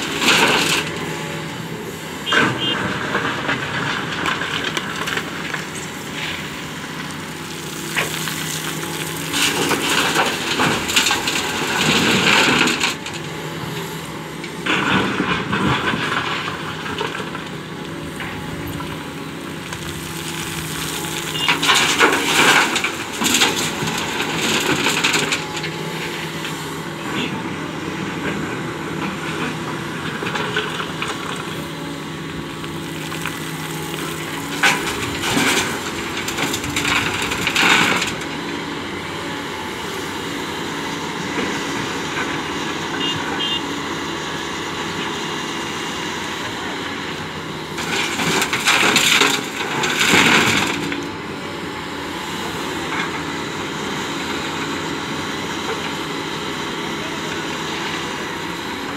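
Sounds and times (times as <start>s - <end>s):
excavator diesel engine running: 0.0s - 58.9s.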